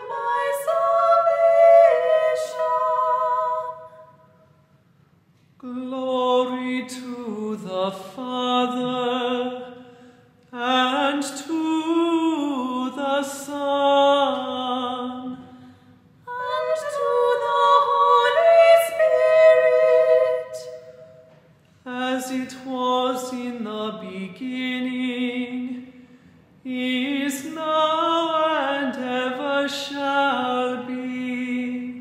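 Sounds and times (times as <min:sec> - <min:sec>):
vocal ensemble chanting: 0:00.0 - 0:04.4, 0:16.3 - 0:25.8
singers breathing: 0:25.9 - 0:26.6.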